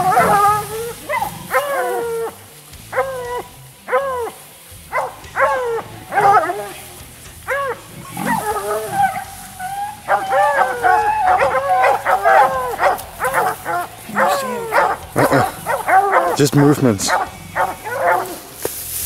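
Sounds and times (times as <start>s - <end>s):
hounds baying: 0.0s - 19.0s.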